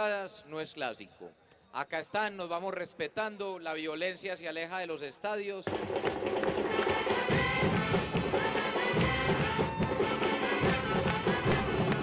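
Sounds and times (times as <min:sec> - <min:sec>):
drums beaten with sticks: 0:05.6 - 0:12.0
brass instruments: 0:05.7 - 0:12.0.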